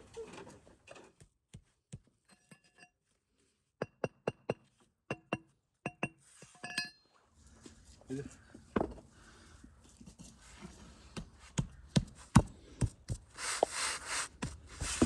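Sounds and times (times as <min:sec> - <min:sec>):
hammer tapping bricks: 0:03.8 - 0:06.2.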